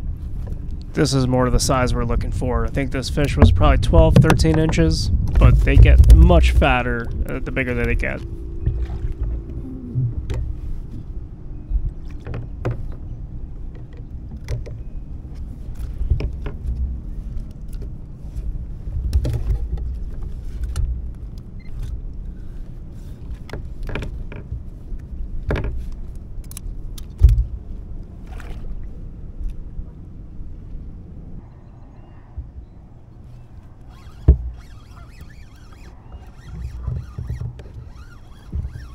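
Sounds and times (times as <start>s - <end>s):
low rumble: 1.8s - 12.1s.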